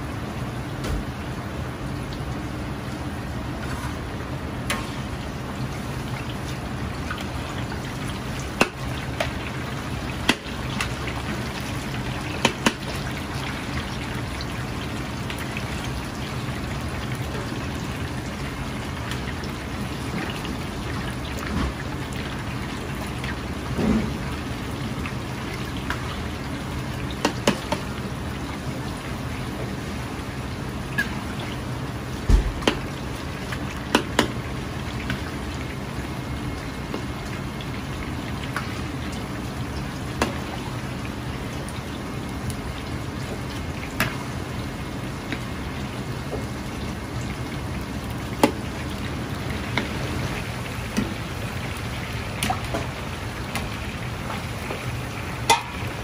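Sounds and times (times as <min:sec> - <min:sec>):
oil sizzling while deep-frying: 0:00.0 - 0:56.0.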